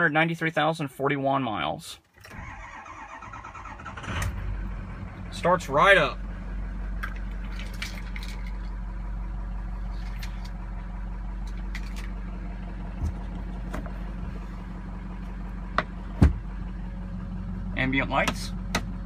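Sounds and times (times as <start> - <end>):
diesel engine idling: 2.3 - 19.0
dull thump: 15.8 - 16.5.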